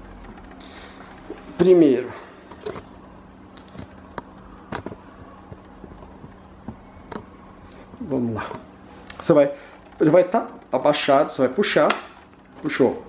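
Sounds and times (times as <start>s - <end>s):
low steady hum: 0.0s - 13.0s
faint clicks and taps: 3.5s - 9.2s.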